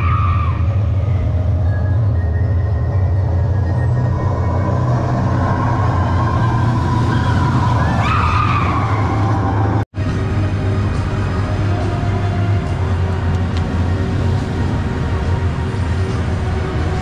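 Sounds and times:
roller coaster rumbling on track: 0.0 - 17.0
roller coaster whine: 0.0 - 17.0.

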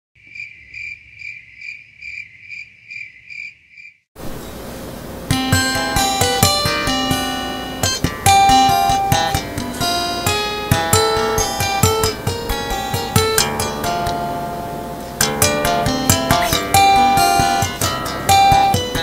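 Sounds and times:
high even chirping: 0.2 - 4.6
tapped string instrument notes: 5.3 - 19.0.

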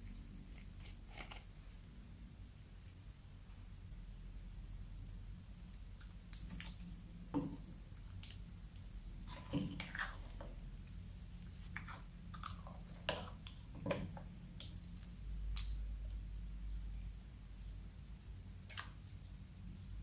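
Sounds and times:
plastic ladle stirring slime: 9.2 - 10.6, 11.4 - 15.8.

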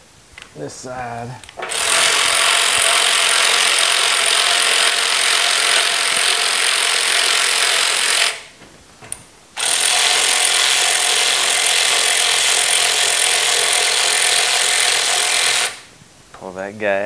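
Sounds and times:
power ratchet whirring: 1.6 - 8.5, 9.6 - 15.9.

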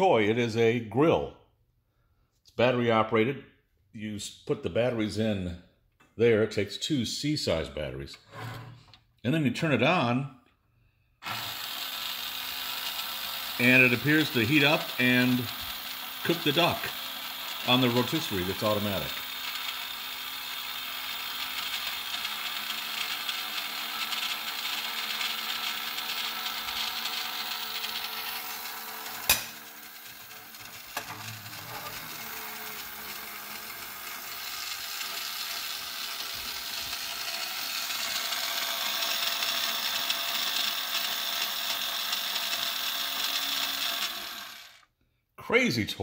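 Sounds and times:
small electric motor and gears: 11.2 - 44.9
sharp click: 29.3 - 29.6.

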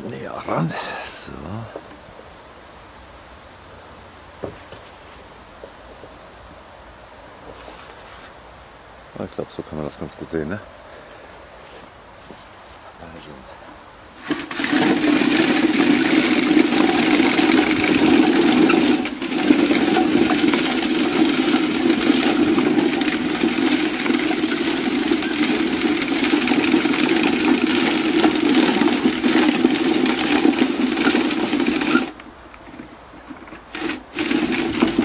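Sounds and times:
hand-cranked shredder grinding apples: 14.2 - 35.0.

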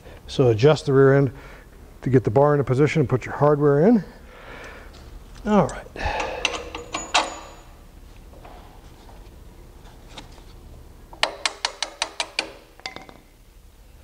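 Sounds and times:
low steady hum: 0.0 - 14.0
sharp metallic clicks: 11.2 - 12.6.

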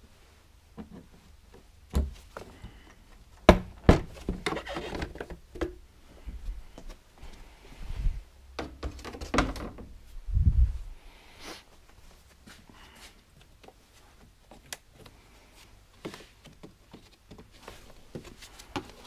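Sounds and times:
sharp knocks and dull thunks: 0.8 - 2.8, 3.4 - 4.6, 8.6 - 9.9
rustling: 10.0 - 19.0.

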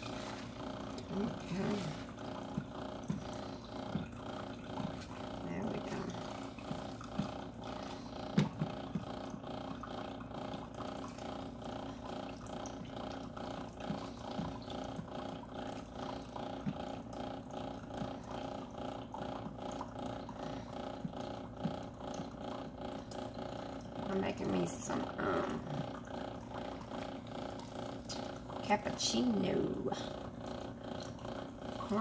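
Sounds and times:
pulsing mechanical hum: 0.0 - 32.0.

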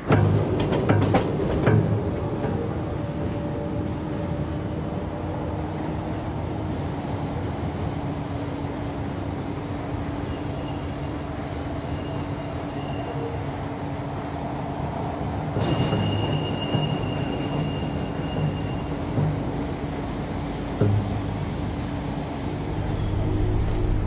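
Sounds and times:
subway train rumble: 0.0 - 24.0
faint wheel squeals: 15.6 - 19.2.

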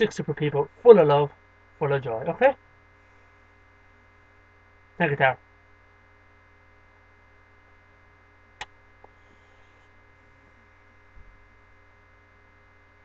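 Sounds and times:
low electrical hum: 0.0 - 13.0
soft low thump: 11.1 - 11.5.

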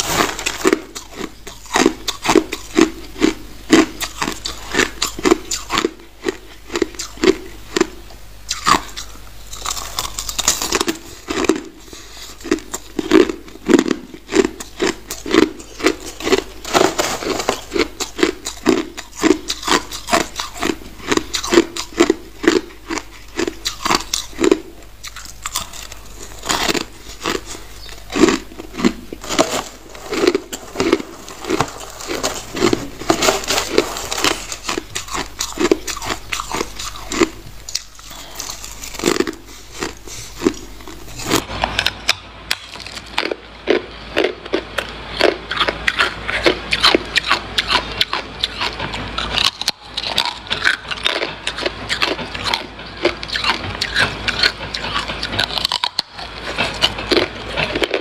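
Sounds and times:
ice being chewed: 0.0 - 58.0.

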